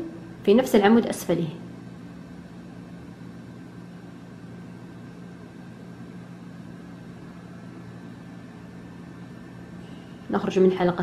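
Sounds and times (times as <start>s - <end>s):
low hum with hiss: 0.0s - 11.0s.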